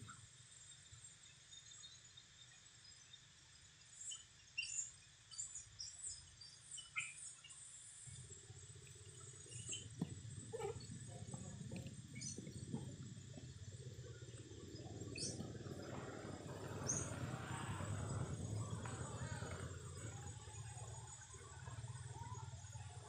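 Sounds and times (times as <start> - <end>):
low steady rumble: 7.6 - 23.0.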